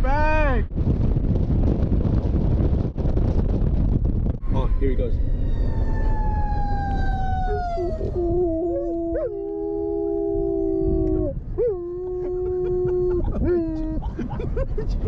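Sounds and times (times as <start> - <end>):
car road rumble: 0.7 - 15.0
dogs howling: 4.6 - 13.3.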